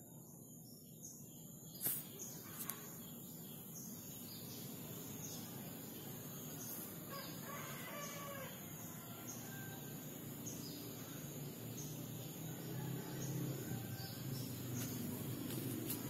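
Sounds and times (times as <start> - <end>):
birds chirping: 0.2 - 16.0.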